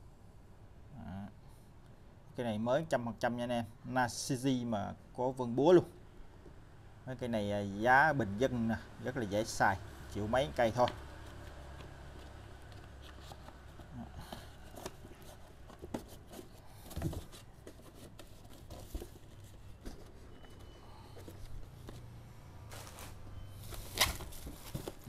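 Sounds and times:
boxes knocking and scuffing: 0:12.8 - 0:22.1, 0:22.7 - 0:25.0.

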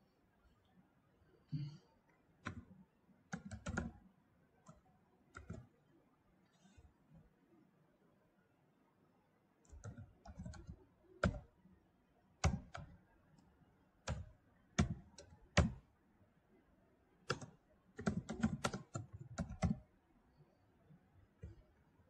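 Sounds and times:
typing on computer keyboard: 0:02.4 - 0:04.0, 0:04.6 - 0:05.7, 0:09.6 - 0:11.5, 0:12.4 - 0:13.0, 0:14.0 - 0:15.9, 0:17.3 - 0:19.9.

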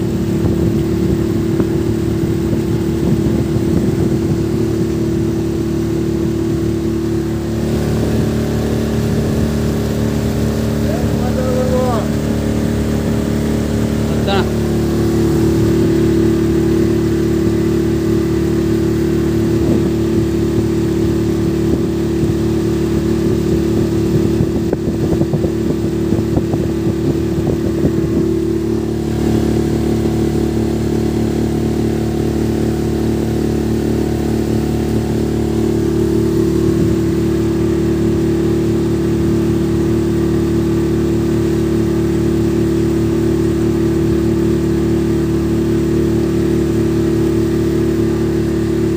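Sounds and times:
motorboat engine running: 0:00.0 - 0:48.9.

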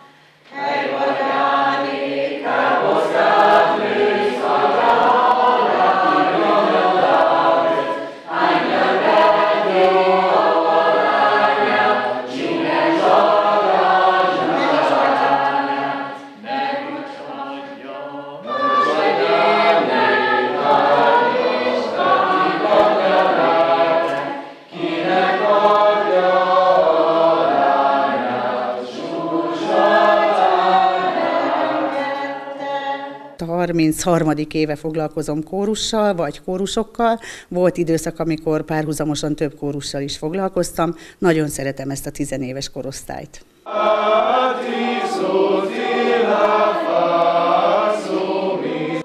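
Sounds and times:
choir singing: 0:00.0 - 0:33.4, 0:43.6 - 0:49.0.

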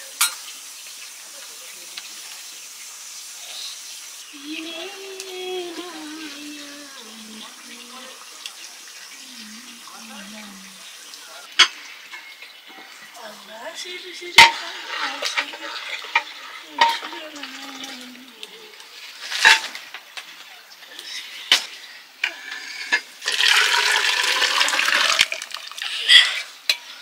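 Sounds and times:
metal ladle knocking on pots: 0:14.4 - 0:17.3.

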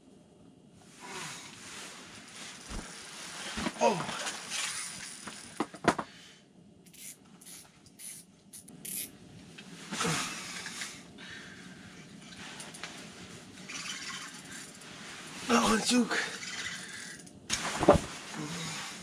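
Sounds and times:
fishing reel drag spurts: 0:13.7 - 0:14.8, 0:16.3 - 0:17.3.

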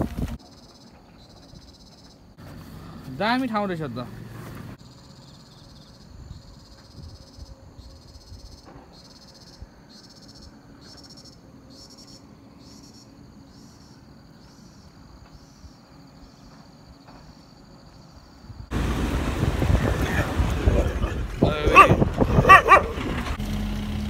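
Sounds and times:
insects chirping: 0:00.4 - 0:03.7, 0:04.8 - 0:18.8.

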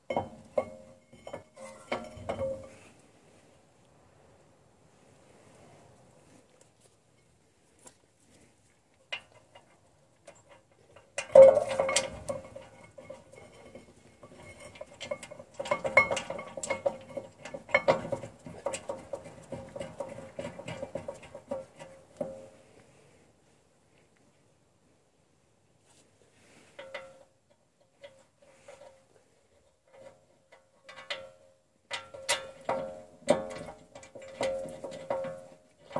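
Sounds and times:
metallic knocks and rattles: 0:00.0 - 0:02.8, 0:09.1 - 0:22.5, 0:29.9 - 0:35.9.

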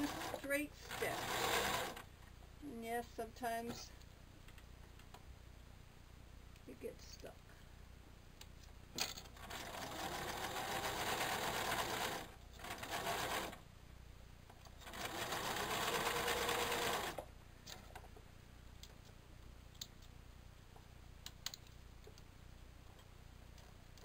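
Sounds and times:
sewing machine stitching: 0:00.0 - 0:02.0, 0:09.4 - 0:13.6, 0:14.8 - 0:17.3.

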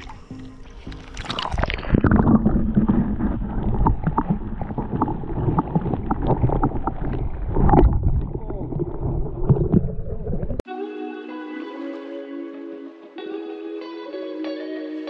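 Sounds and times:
muffled underwater gurgling rumble: 0:00.0 - 0:10.6
water splashing: 0:00.0 - 0:10.6.

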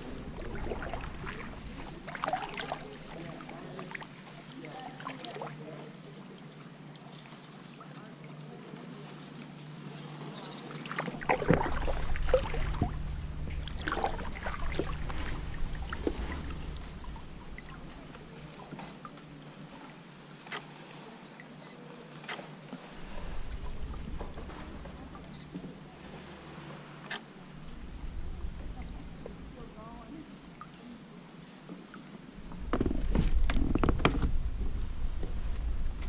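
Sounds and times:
kayak and gear knocking: 0:11.1 - 0:18.2, 0:32.5 - 0:36.0.

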